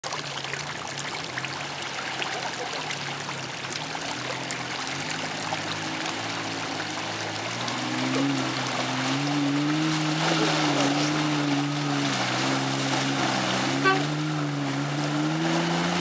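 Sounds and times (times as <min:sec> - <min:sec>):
diesel engine running: 0:05.9 - 0:16.0.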